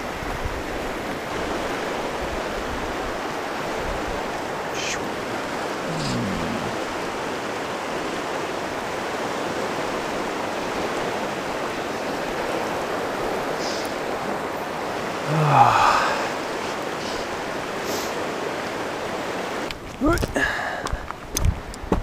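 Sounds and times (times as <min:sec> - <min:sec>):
river rushing: 0:00.0 - 0:21.9
short low grunt: 0:05.8 - 0:06.9, 0:15.2 - 0:16.2.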